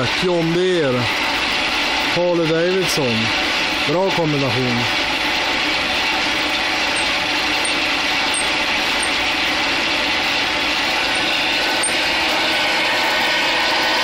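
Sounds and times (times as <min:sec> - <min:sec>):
drill press grinding metal: 0:05.5 - 0:14.0.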